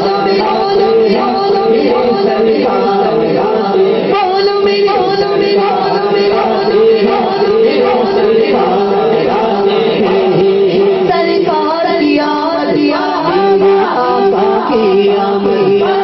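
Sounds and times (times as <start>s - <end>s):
men singing unaccompanied: 0.0s - 16.0s.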